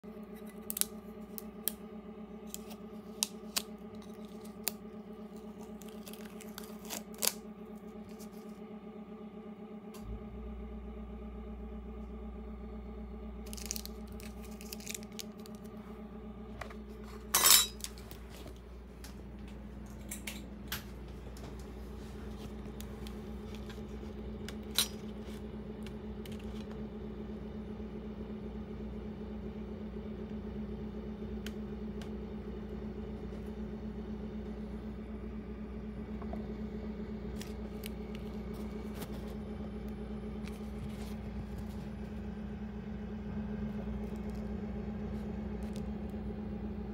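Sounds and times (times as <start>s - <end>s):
electrical hum with fixed tones: 0.0s - 46.9s
metal clatter: 17.2s - 17.9s.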